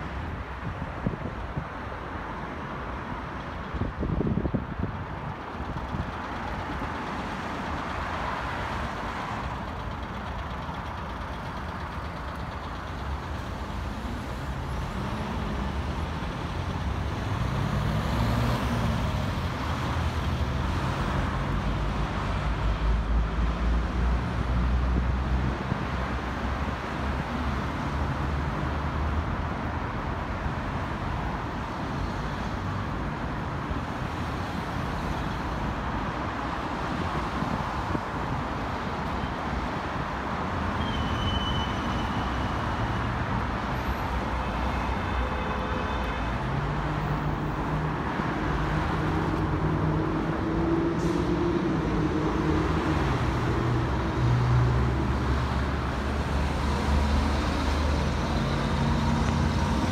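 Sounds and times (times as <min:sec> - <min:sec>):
street traffic noise: 0:00.0 - 0:59.9
large vehicle engine running: 0:07.6 - 0:14.8.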